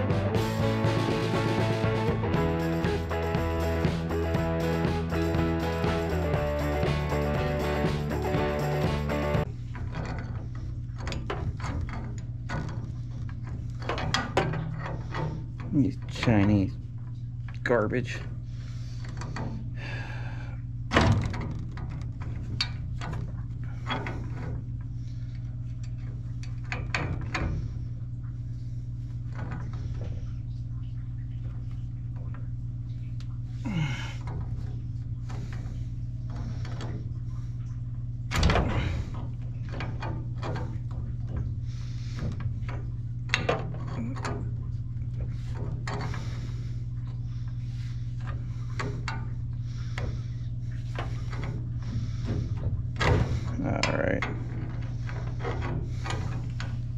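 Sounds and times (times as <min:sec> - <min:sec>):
steady low hum: 0:00.0 - 0:56.9
pipe wrenches clanking on pipe: 0:06.6 - 0:16.8, 0:20.9 - 0:25.1, 0:38.3 - 0:56.9.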